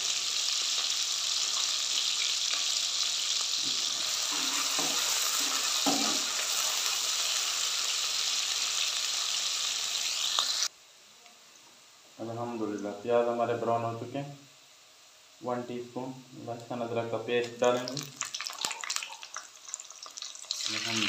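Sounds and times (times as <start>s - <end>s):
onions sizzling in hot oil: 0.0s - 10.7s, 16.7s - 21.0s.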